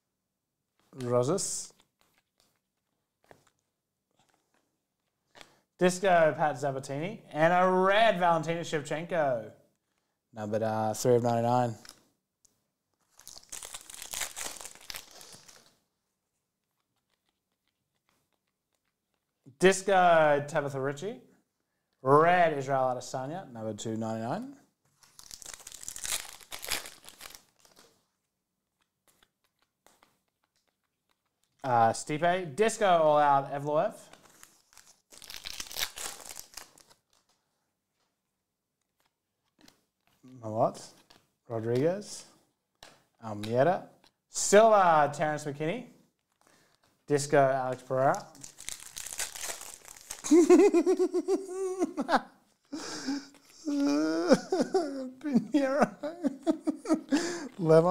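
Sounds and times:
trading cards rustling: 0:00.8 - 0:05.7, 0:12.9 - 0:19.4, 0:24.9 - 0:31.6, 0:34.0 - 0:38.2, 0:38.8 - 0:44.8, 0:46.1 - 0:57.9.

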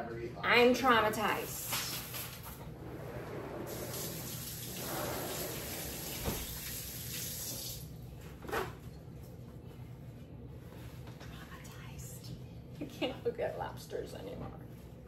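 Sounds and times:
water running from tap: 0:03.7 - 0:07.9.

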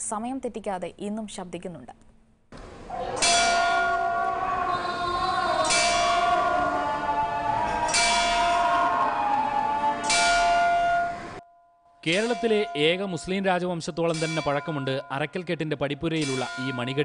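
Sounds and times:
large metal bell ringing: 0:03.0 - 0:06.5, 0:07.8 - 0:08.7, 0:10.0 - 0:17.0.

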